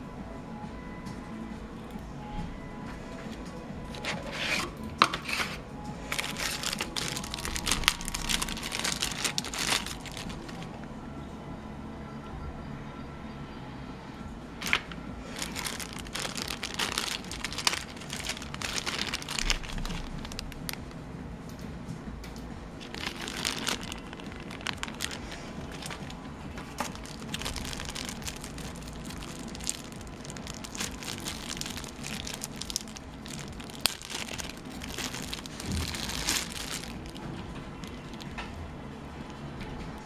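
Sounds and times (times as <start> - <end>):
plastic bags crinkling: 3.3 - 10.9, 14.6 - 21.0, 22.8 - 38.6.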